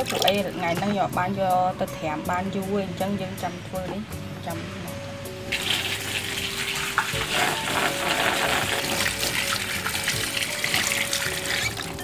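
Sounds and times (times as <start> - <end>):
tap water running: 0.0 - 0.6, 5.5 - 12.0.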